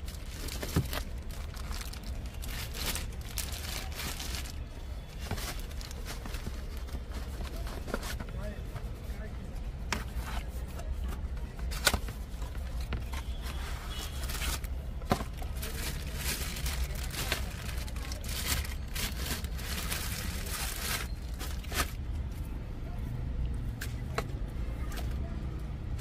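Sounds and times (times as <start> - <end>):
plastic packaging crinkling: 0.0 - 8.0, 13.9 - 22.0.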